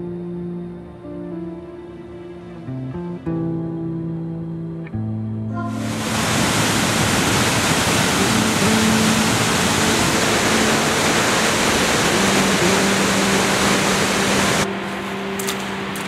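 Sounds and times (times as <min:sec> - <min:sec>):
waterfall rushing: 0:05.7 - 0:16.0.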